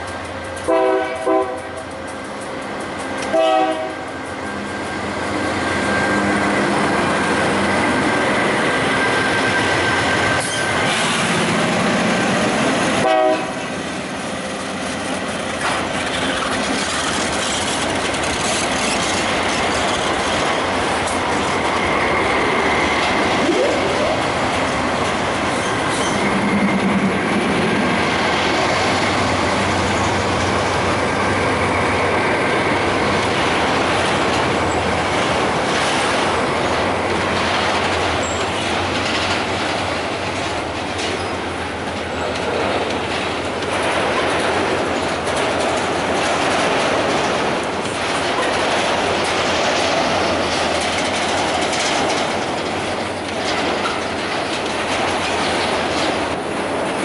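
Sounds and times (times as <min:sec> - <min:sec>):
diesel locomotives passing: 0:00.0 - 0:57.0
wheels on rails: 0:00.0 - 0:57.0
train horn blasts: 0:00.7 - 0:01.7, 0:03.3 - 0:04.1, 0:13.0 - 0:13.7.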